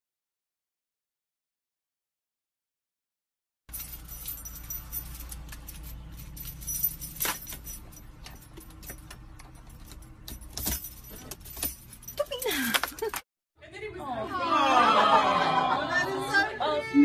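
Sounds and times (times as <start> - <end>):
small metal objects jingling: 3.7 - 13.2.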